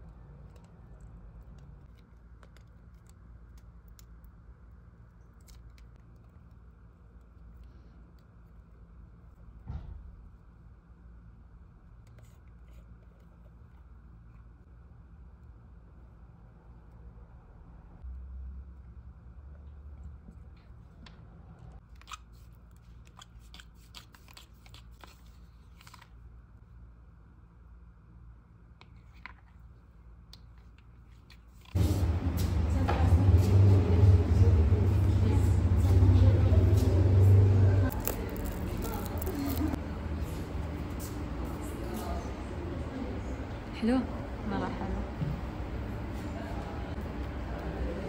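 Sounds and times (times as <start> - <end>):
low steady hum: 25.2 - 48.0
tube squeezing clicks and crinkles: 37.9 - 39.8.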